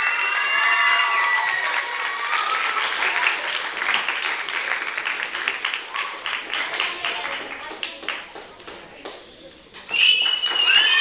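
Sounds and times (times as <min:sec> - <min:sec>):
whoops and cheers: 0:00.0 - 0:03.0, 0:09.9 - 0:11.0
audience clapping: 0:00.0 - 0:09.3, 0:09.9 - 0:11.0.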